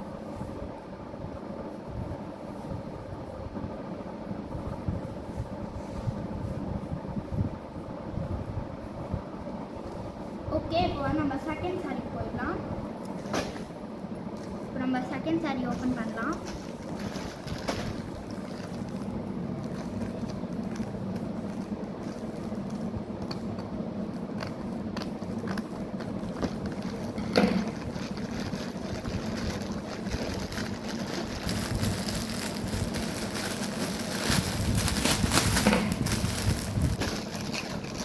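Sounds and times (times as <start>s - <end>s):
steady low hum: 0.0s - 38.0s
plastic crinkling: 15.2s - 38.0s
scissors cutting plastic: 32.9s - 38.0s.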